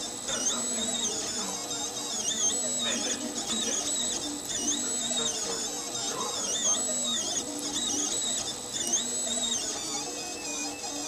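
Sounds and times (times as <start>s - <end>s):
stepper motors whining: 0.0s - 11.0s.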